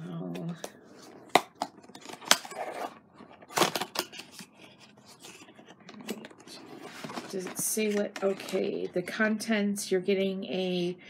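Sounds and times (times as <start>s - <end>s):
tape scraping and rustling: 1.0s - 8.6s.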